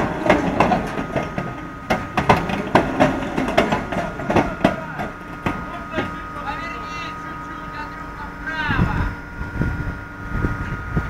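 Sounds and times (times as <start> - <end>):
metallic clanks and knocks: 0.0 - 6.2
high machinery whine: 0.0 - 11.0
low machinery rumble: 0.0 - 11.0.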